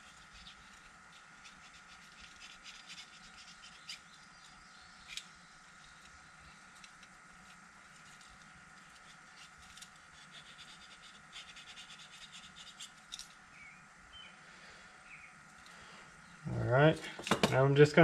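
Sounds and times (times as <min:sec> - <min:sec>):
scratching and clicking of small jets: 0:00.0 - 0:13.5
faint steady hum: 0:00.0 - 0:18.0.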